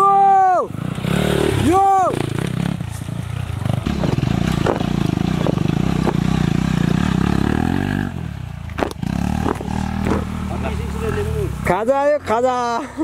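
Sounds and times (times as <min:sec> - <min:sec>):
dirt bike engine running: 0:00.6 - 0:12.1.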